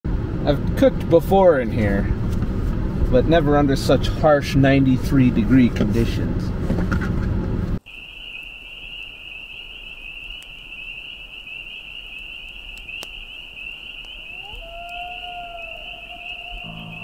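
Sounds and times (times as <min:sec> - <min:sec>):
night insects trilling: 0:07.8 - 0:17.0
ambient intro music: 0:16.6 - 0:17.0.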